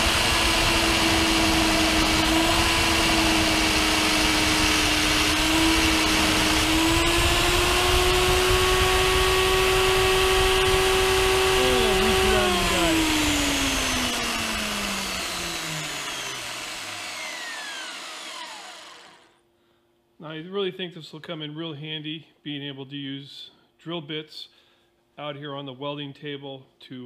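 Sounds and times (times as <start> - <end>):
drill motor whining: 0.0 - 19.4.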